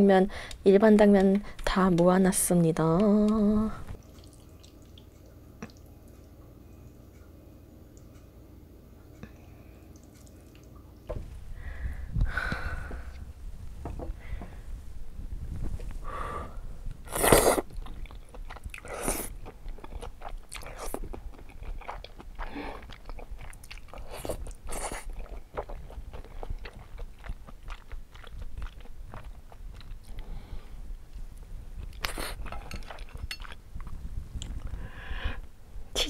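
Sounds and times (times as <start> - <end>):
air conditioner hum: 0.0 - 36.0
soft chewing and mouth clicks: 2.9 - 8.3, 9.0 - 11.1, 17.5 - 34.9.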